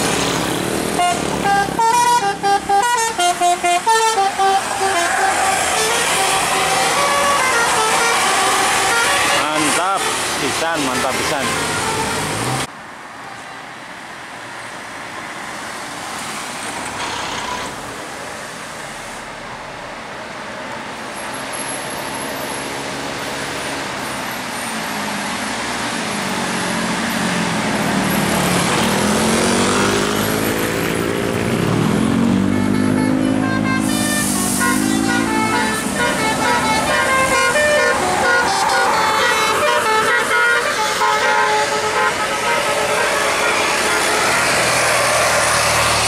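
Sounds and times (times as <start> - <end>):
traffic noise: 0.0 - 46.0
multi-tone bus horn: 0.9 - 12.7, 32.0 - 45.2.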